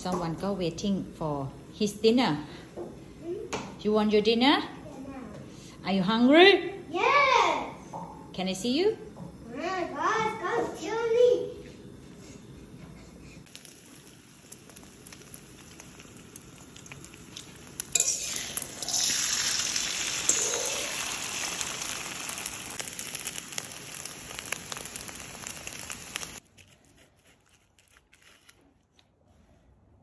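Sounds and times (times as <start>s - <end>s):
eggs sizzling in a wok: 13.4s - 26.4s
stirring clicks and scrapes in pan: 13.5s - 19.2s.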